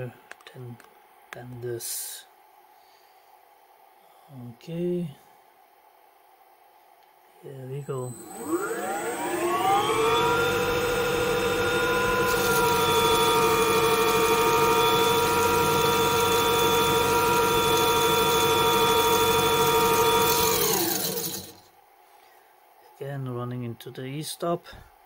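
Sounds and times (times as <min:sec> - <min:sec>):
lathe spindle whine: 0:07.7 - 0:21.7.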